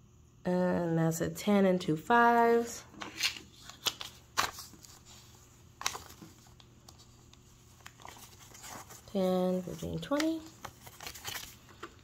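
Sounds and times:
paper bills rustling: 3.0s - 12.0s.

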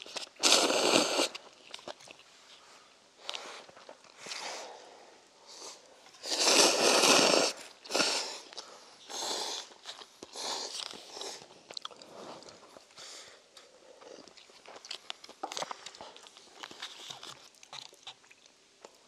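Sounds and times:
people slurping noodles: 0.1s - 1.4s, 6.2s - 8.5s
chewing: 1.4s - 2.6s, 9.6s - 13.0s, 13.6s - 19.0s.

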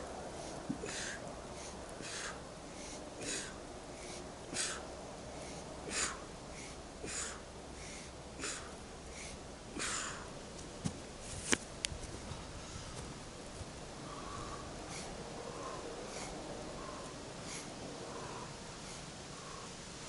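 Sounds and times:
man exhaling forcefully: 0.8s - 1.2s, 2.0s - 2.4s, 3.2s - 3.6s, 4.5s - 4.8s, 5.9s - 6.3s, 7.0s - 10.3s.

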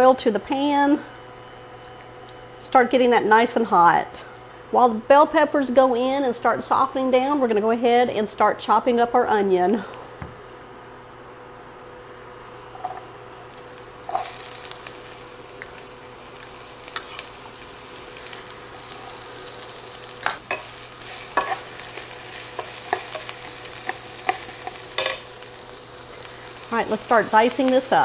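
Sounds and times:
peppers sizzling in hot oil: 12.7s - 28.0s
stirring scrapes and knocks on pan: 21.3s - 21.6s.

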